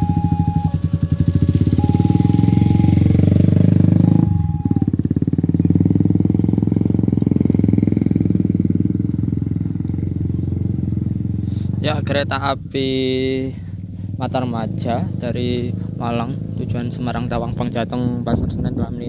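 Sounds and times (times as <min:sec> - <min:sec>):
two-tone warning alarm: 0:00.0 - 0:05.1
motorcycle engines: 0:00.0 - 0:19.0.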